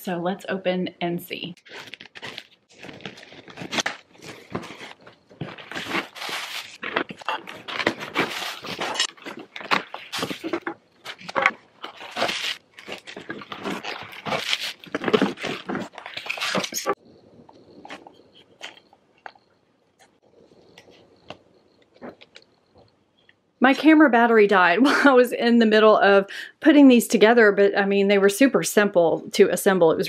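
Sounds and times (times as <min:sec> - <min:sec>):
cardboard packaging rustling: 0:01.6 - 0:17.0.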